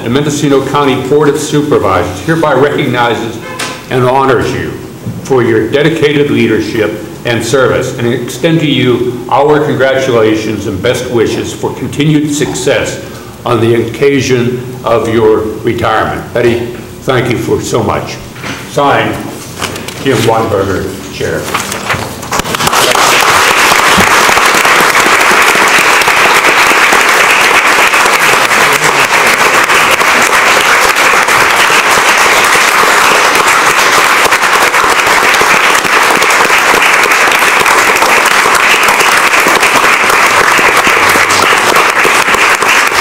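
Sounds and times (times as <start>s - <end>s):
large audience applauding: 22.3s - 43.0s.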